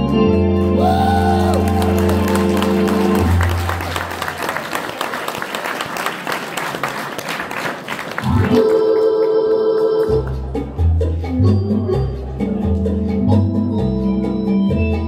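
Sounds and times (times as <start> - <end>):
organ playing held chords: 0.0 - 4.2
audience applauding: 0.8 - 9.0.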